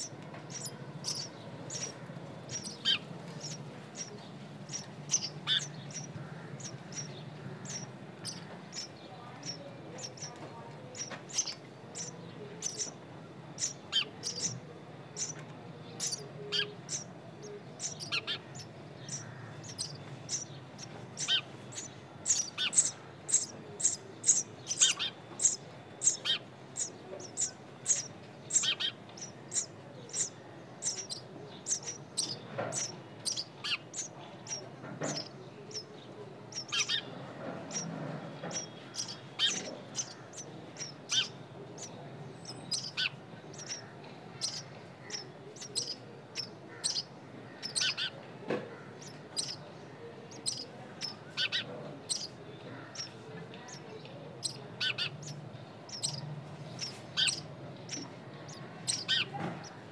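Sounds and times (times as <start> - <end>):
baby birds chirping: 0.0 - 59.9.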